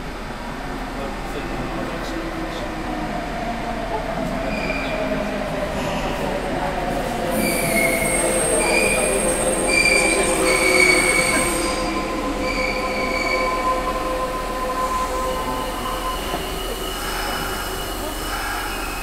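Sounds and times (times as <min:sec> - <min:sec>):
train wheels squealing: 0:04.4 - 0:05.0, 0:07.3 - 0:19.0.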